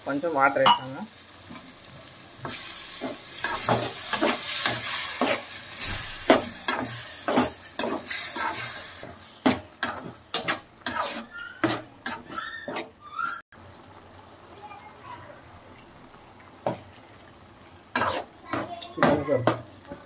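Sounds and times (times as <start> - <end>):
masala sizzling: 0.0 - 20.0
metal spatula scraping pan: 2.5 - 12.9, 17.9 - 19.6.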